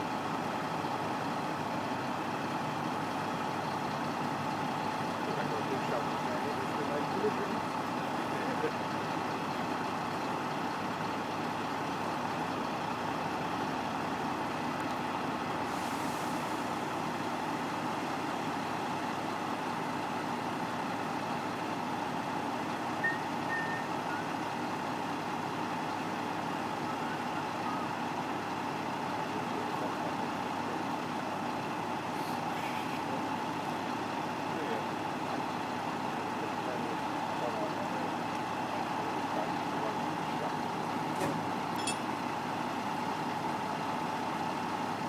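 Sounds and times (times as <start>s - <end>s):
diesel truck engine running: 0.0s - 45.0s.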